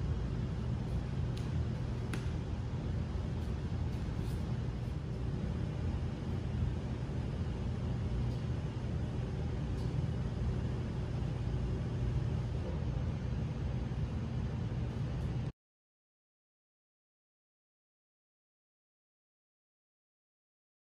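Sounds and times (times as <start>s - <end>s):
low background rumble: 0.0s - 15.5s.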